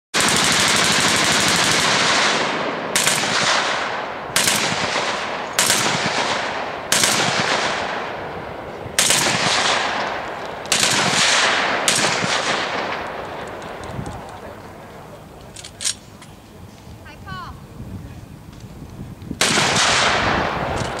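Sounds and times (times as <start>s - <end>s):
machine-gun fire: 0.2s - 8.1s, 9.0s - 13.4s, 19.4s - 21.0s.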